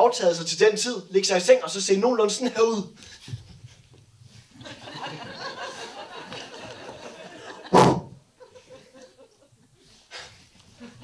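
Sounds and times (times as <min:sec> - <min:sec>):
audience laughing: 0:04.6 - 0:09.7.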